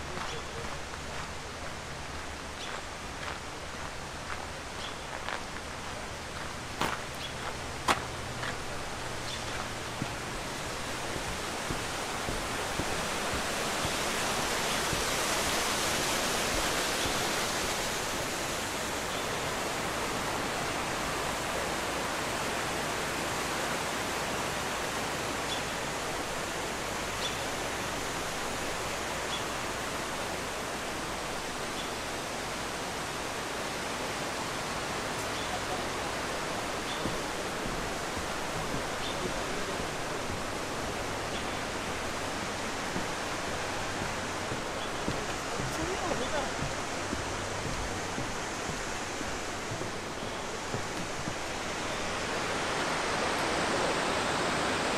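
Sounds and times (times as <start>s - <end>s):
rushing river water: 0.0s - 54.9s.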